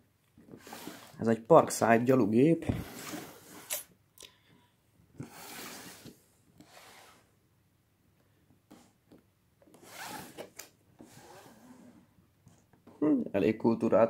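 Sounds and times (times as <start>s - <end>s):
cardboard box scraping on wood: 0.6s - 1.2s, 2.7s - 3.7s, 5.2s - 7.3s.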